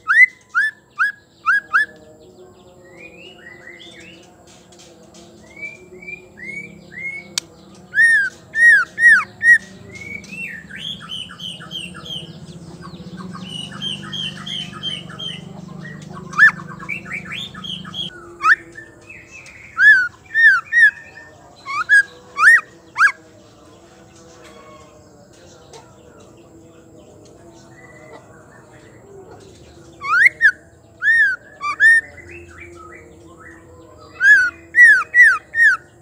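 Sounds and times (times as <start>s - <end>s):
bird whistling calls: 0.0s - 1.9s, 13.4s - 18.8s, 19.7s - 23.2s, 30.0s - 32.8s, 34.2s - 35.8s
bird chattering: 5.5s - 23.2s, 27.9s - 32.8s, 34.0s - 36.0s.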